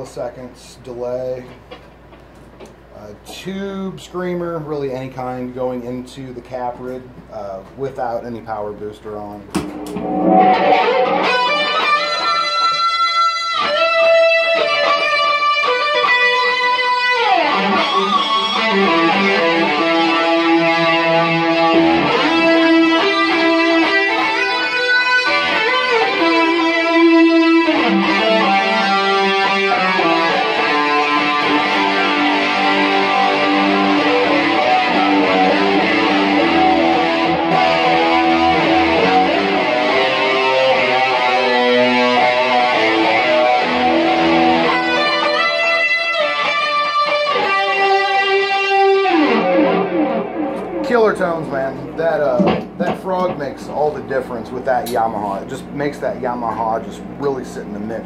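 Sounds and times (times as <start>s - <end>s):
electric guitar slow lead: 9.6s - 54.0s.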